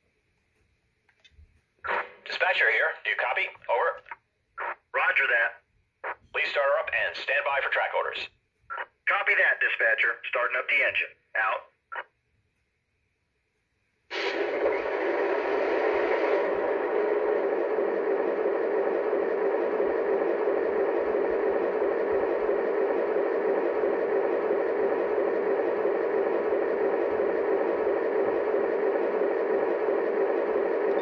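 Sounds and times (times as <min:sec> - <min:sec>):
model locomotive diesel engine rumble: 0:14.1 - 0:31.0.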